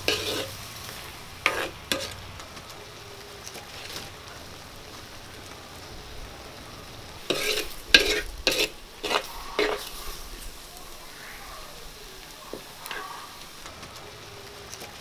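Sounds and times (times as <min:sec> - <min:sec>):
ladle scraping clay pot: 0:00.0 - 0:00.6, 0:01.4 - 0:02.2, 0:07.2 - 0:10.4.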